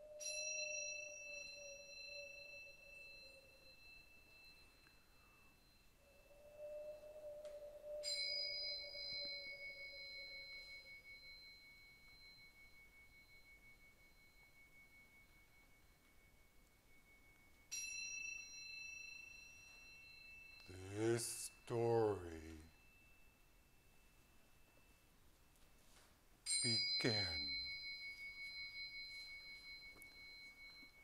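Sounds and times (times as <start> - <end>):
soft low tone: 20.6 - 25.1
struck metal instruments ringing: 26.5 - 31.0.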